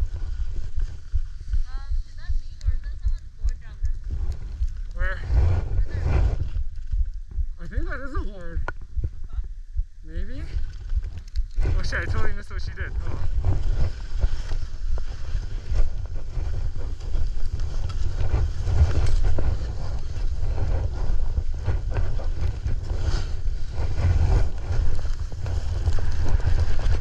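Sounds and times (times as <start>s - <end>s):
wind buffeting microphone: 0.0s - 27.0s
skis swishing through snow: 11.6s - 27.0s.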